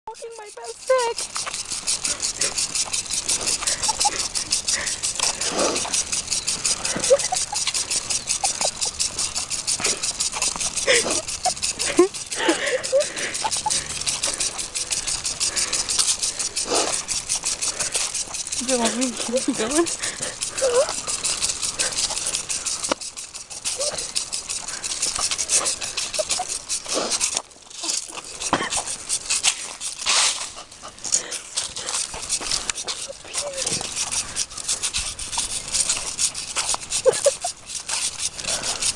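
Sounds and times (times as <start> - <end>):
short squeaks: 0.1 - 30.6
twigs scratching on concrete: 0.1 - 38.9.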